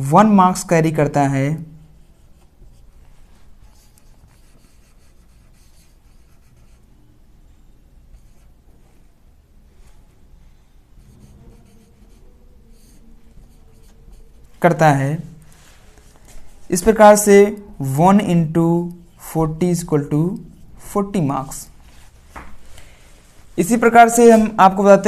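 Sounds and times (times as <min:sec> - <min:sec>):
marker pen writing on whiteboard: 0:01.5 - 0:07.0, 0:08.1 - 0:09.0, 0:10.8 - 0:22.6.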